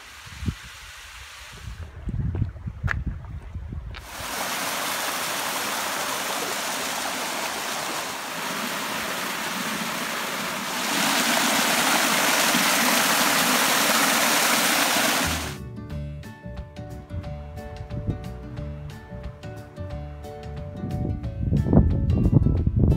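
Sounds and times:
waterfall rushing over rocks: 4.0s - 15.6s.

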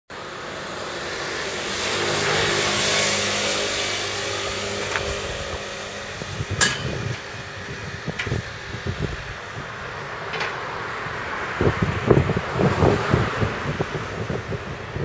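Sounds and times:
vehicle passing by: 0.2s - 15.0s.

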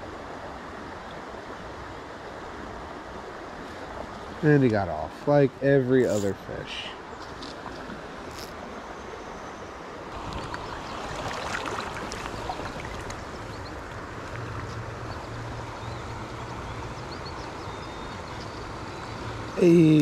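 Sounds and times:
creek water rushing over riffle: 9.8s - 20.0s.

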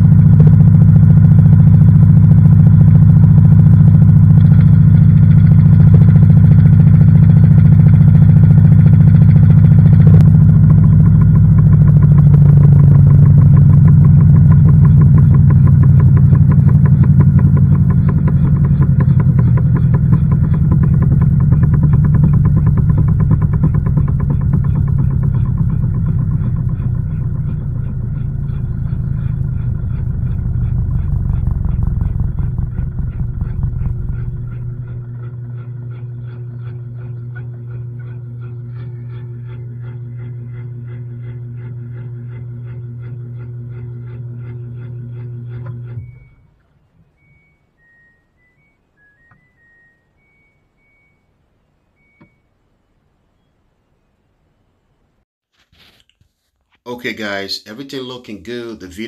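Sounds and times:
fast regular pulsing: 0.0s - 46.5s
washing machine drum spinning: 0.0s - 46.5s.

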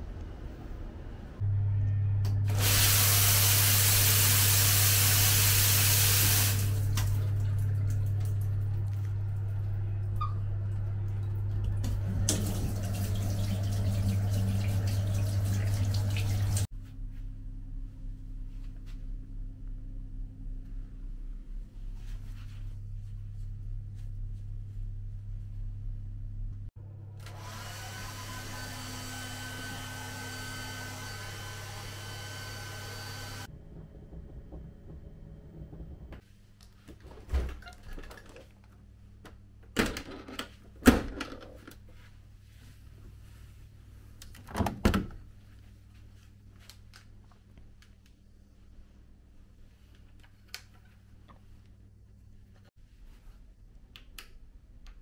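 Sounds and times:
steady low hum: 0.0s - 2.5s, 16.5s - 27.2s, 32.5s - 36.8s
hair dryer blowing with whine: 2.5s - 6.7s, 27.2s - 33.5s
shower head spraying water: 2.5s - 7.0s, 12.1s - 16.7s.

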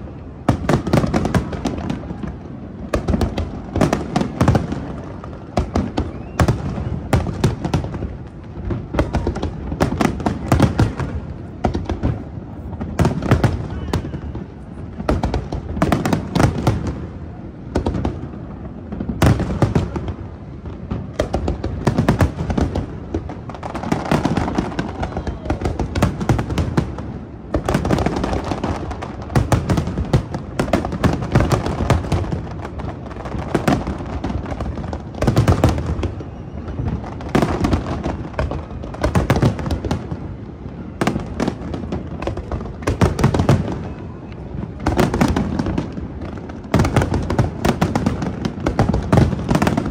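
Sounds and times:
fireworks bursts and booms: 0.0s - 49.9s.

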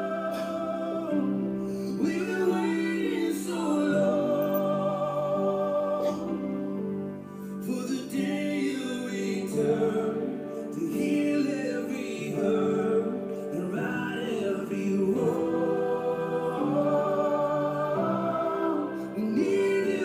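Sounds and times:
voices singing church music: 0.0s - 20.0s.

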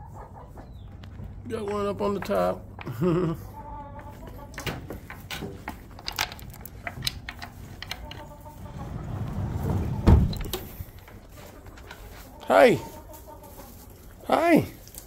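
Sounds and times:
hen clucking: 0.0s - 6.0s, 7.1s - 14.3s
footsteps rustling in straw: 11.1s - 15.0s.

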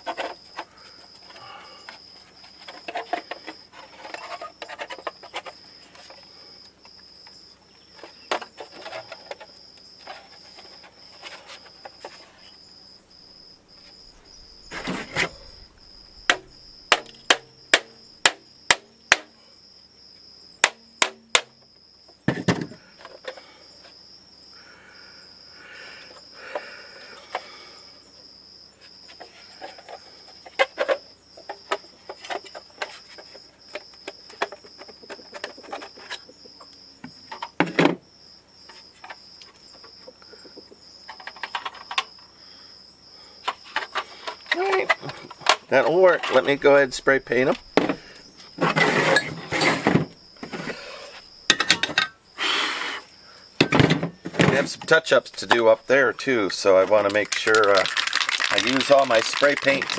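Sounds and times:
high insect trill: 0.0s - 59.9s
thump: 49.6s - 50.7s, 53.6s - 54.7s.

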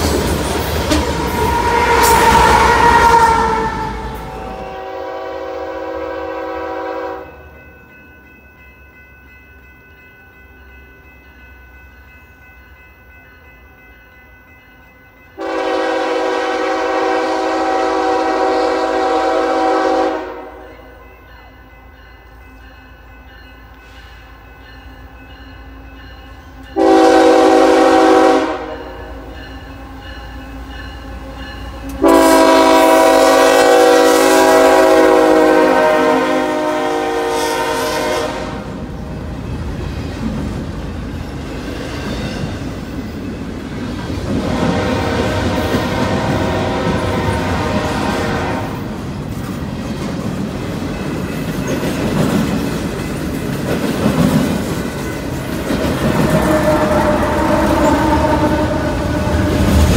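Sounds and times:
freight train rumble: 0.0s - 59.9s
locomotive air horn blasts: 1.2s - 7.4s, 15.4s - 20.7s, 26.8s - 29.0s, 32.0s - 38.7s, 44.4s - 48.9s, 56.3s - 59.9s.

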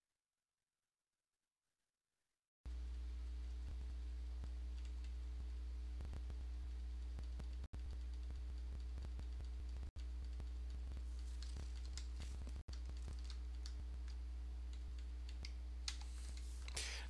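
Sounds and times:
steady low hum: 2.7s - 17.0s
computer keyboard typing: 7.2s - 16.0s.

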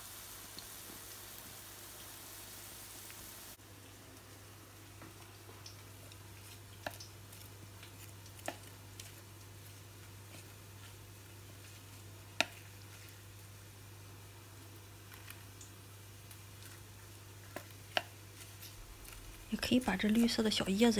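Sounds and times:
wet batter squishing: 4.9s - 13.8s, 14.6s - 20.9s
chopsticks clicking on bowl: 6.8s - 7.2s.

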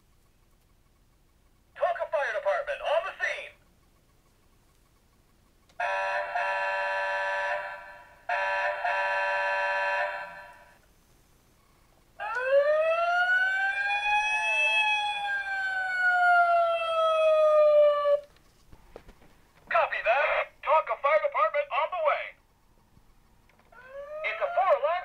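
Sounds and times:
electronic horn blasts: 5.8s - 10.8s
toy siren wail: 12.2s - 18.3s, 23.7s - 25.0s.

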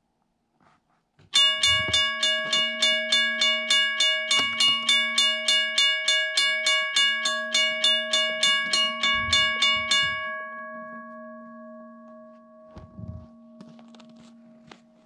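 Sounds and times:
railroad crossing bell: 1.4s - 15.0s
low thuds: 8.7s - 10.4s, 12.8s - 13.7s.

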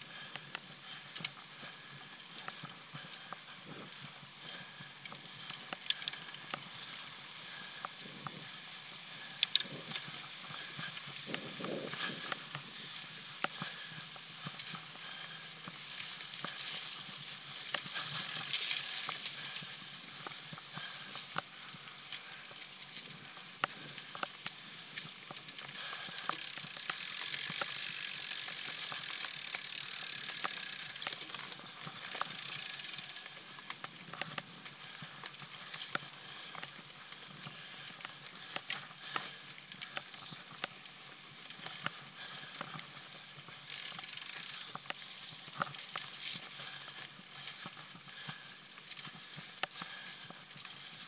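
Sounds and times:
bike rattling over dirt: 0.0s - 51.0s
bike freehub ratchet buzzing: 18.0s - 19.2s, 25.5s - 31.1s, 32.1s - 33.2s, 43.6s - 44.8s.

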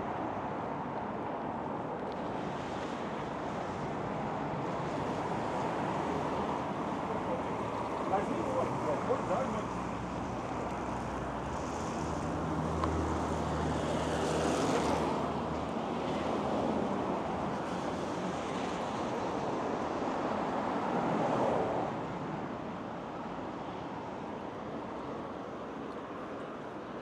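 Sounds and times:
cars driving past: 4.6s - 22.4s.

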